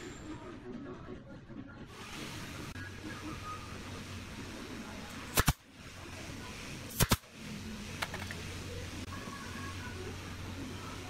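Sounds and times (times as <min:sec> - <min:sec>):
nail gun firing: 0:05.3 - 0:05.6, 0:06.9 - 0:07.3.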